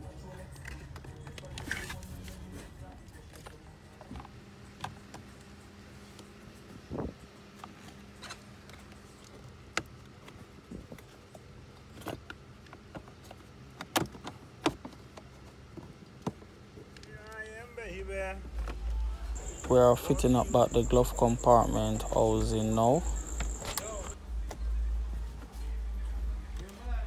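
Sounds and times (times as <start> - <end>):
faint steady hum: 16.0 - 27.0.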